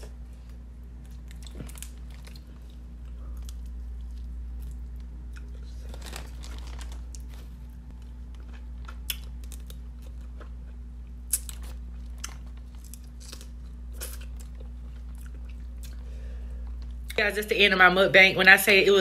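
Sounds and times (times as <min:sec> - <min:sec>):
steady low hum: 0:00.0 - 0:19.0
crab shell cracking and chewing: 0:07.9 - 0:16.0.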